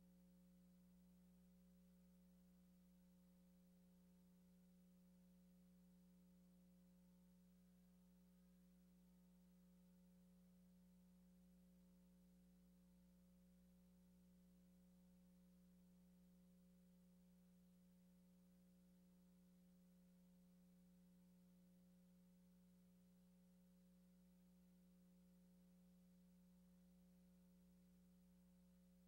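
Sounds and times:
faint low hum: 0.0s - 29.0s.

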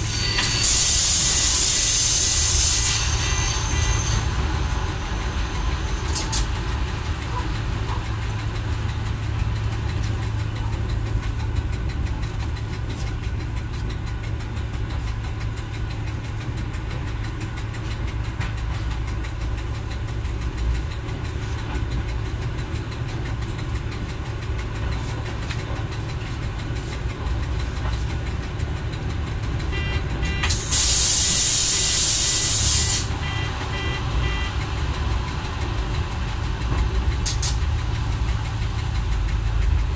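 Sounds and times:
loud hiss: 0.0s - 6.4s, 30.5s - 33.7s
diesel railcar engine rumble: 0.0s - 39.9s.

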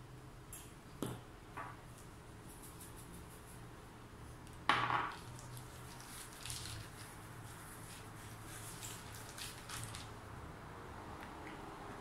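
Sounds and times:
hands rustling on pastry: 5.2s - 10.2s.

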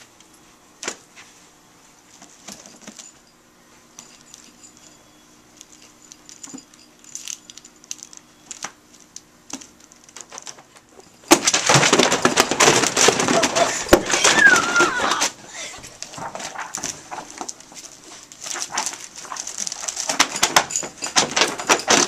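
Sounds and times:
book pages rustling: 12.8s - 20.4s.

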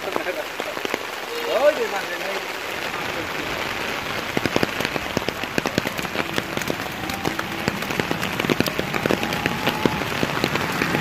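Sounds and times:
raindrops ticking: 0.0s - 11.0s
steady rain hiss: 0.0s - 11.0s.

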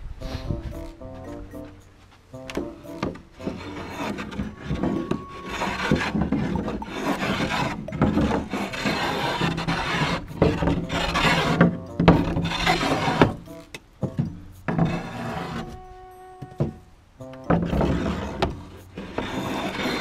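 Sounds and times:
background music: 0.0s - 20.0s
tool rasping on wood: 2.8s - 13.7s, 14.7s - 15.8s, 17.5s - 20.0s.

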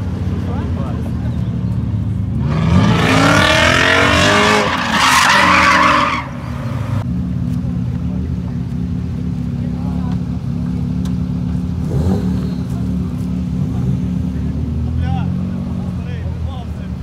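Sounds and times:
car engine revving: 2.0s - 7.1s, 11.0s - 16.2s
tyres squealing: 3.2s - 6.8s
car engine idling: 4.7s - 17.0s.

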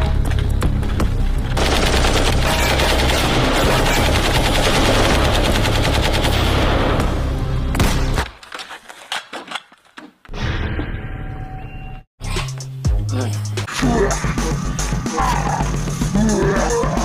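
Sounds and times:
rapid automatic gunfire: 1.6s - 6.8s.

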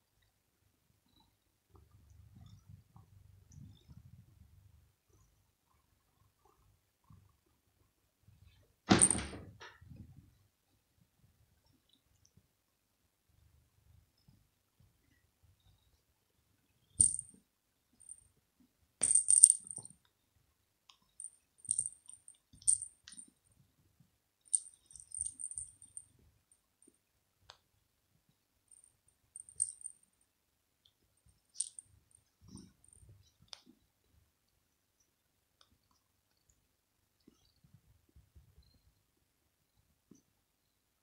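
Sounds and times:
small jingle bell jingling: 17.0s - 17.3s, 19.0s - 19.9s, 21.2s - 23.2s, 24.5s - 26.1s, 28.7s - 30.0s, 31.5s - 31.9s.

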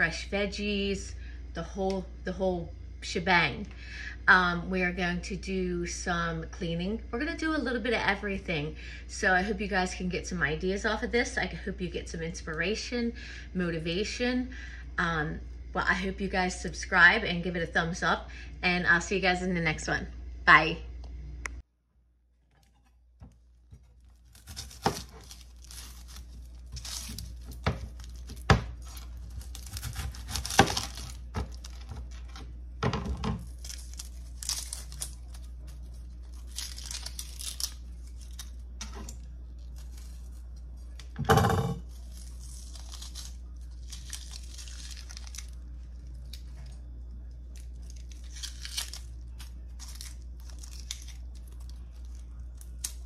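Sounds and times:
steady low hum: 0.0s - 53.0s
onion skin crackling and tearing: 22.5s - 53.0s.

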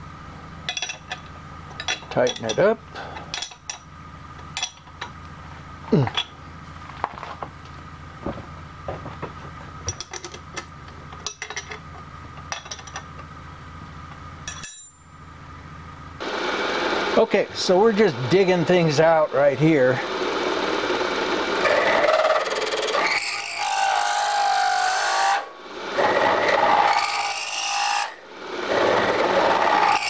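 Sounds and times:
steady machine hum: 0.0s - 30.0s
wrench clanking on metal: 0.7s - 3.9s, 4.5s - 5.2s, 6.0s - 6.4s, 9.9s - 13.1s, 14.4s - 15.1s
milling machine cutting metal: 20.0s - 30.0s.

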